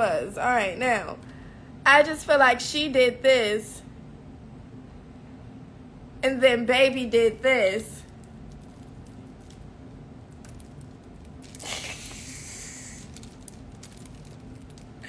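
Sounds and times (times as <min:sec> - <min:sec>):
steady low hum: 0:00.0 - 0:15.0
soft hiss: 0:11.3 - 0:13.8.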